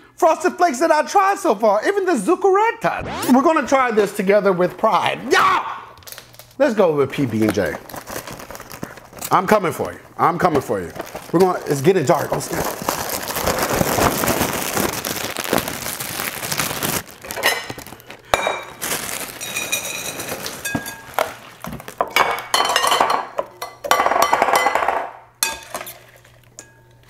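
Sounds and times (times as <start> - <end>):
plastic bag rustling: 4.9 - 22.1
cereal pouring into glass bowl: 10.7 - 21.5.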